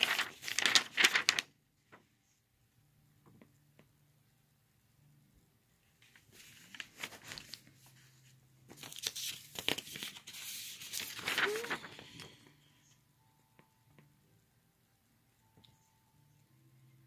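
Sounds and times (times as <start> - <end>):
paper rustling and crinkling: 0.0 - 2.1, 6.0 - 12.5.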